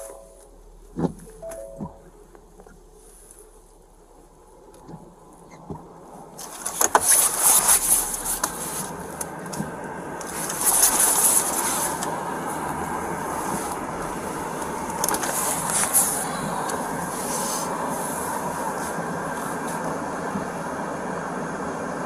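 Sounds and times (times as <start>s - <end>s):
rustling on camera microphone: 6.3s - 19.9s.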